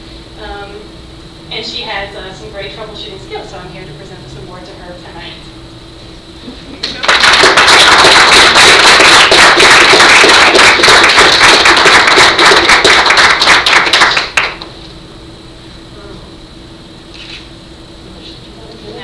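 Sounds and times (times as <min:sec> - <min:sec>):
small group clapping: 0:06.8 - 0:14.7.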